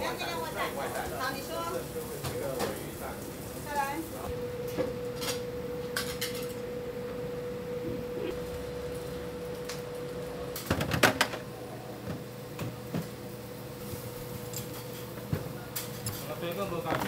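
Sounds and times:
kitchen hum: 0.0s - 17.0s.

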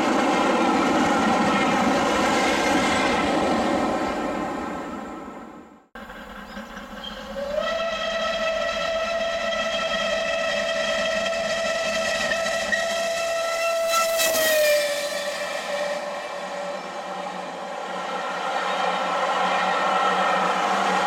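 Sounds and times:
approaching train: 0.0s - 21.0s
steam locomotive whistle blast: 6.4s - 17.2s.

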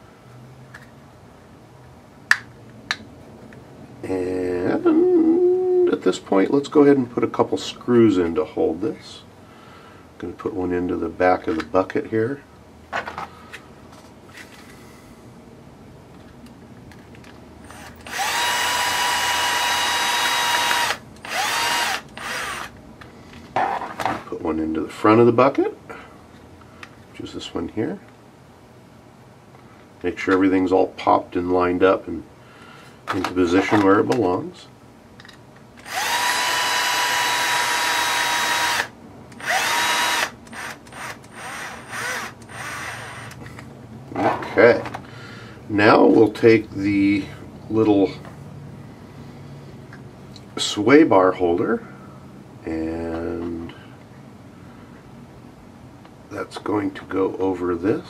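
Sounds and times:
electric screwdriver whining: 17.7s - 22.7s, 35.8s - 43.4s.

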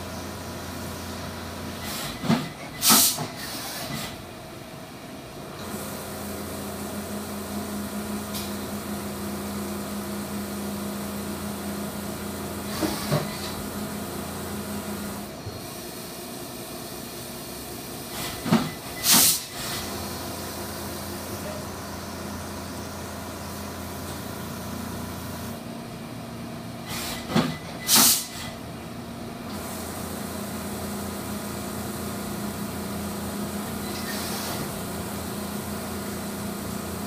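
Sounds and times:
machine running with coolant spray: 29.5s - 37.0s.

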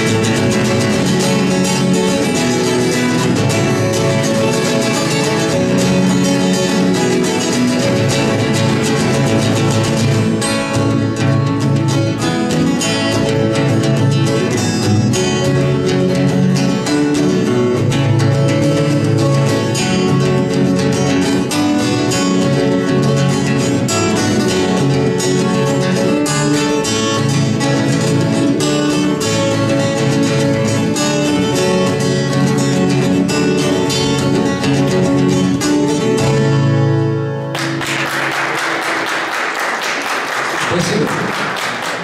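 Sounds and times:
acoustic guitars strumming: 0.0s - 42.0s
audience applause: 37.5s - 42.0s.

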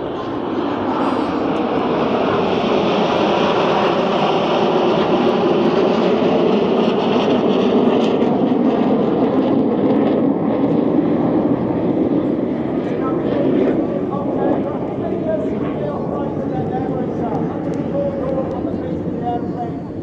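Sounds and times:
jets flying past: 0.0s - 20.0s.

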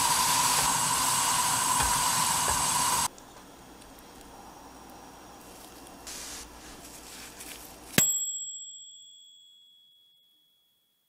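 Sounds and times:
faint hiss: 0.0s - 7.7s
high clear bell ding: 8.0s - 10.8s.

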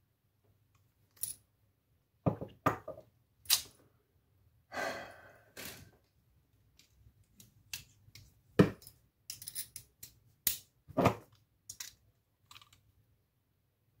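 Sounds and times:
tools and padlock clinking: 1.1s - 1.5s, 6.8s - 10.7s, 11.6s - 12.8s.

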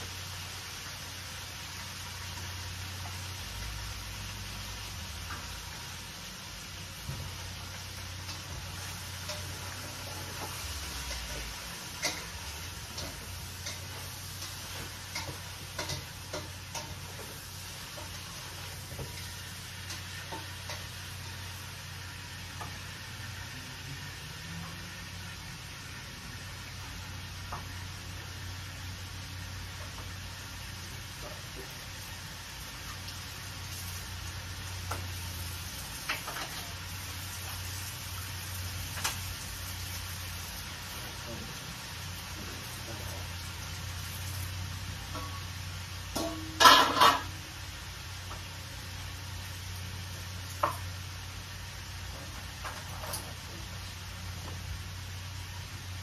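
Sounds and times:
steady low hiss: 0.0s - 56.0s
kitchenware clinking: 46.2s - 47.4s.

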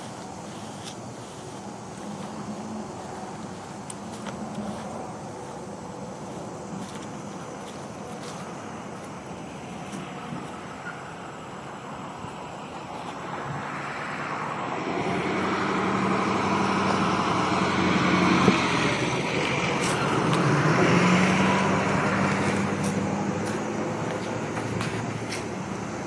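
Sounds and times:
rail machine engines humming: 0.0s - 26.0s.

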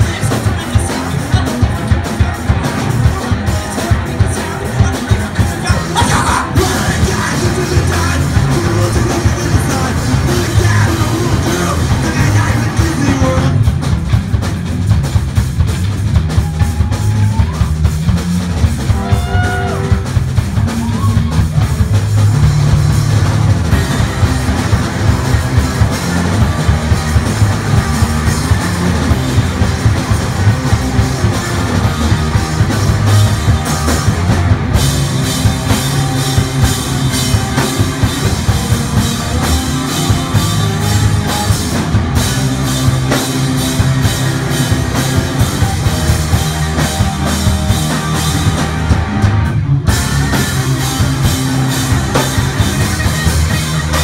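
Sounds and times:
person singing: 0.0s - 13.7s
drum kit: 0.0s - 54.0s
guitar: 0.0s - 54.0s
rock band playing: 0.0s - 54.0s.

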